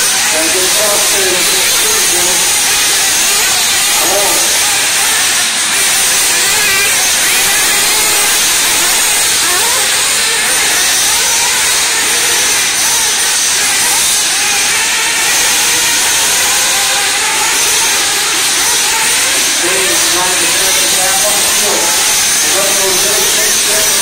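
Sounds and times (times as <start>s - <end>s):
steady loud hiss: 0.0s - 17.2s, 17.8s - 24.0s
rc car motors whining: 0.0s - 24.0s.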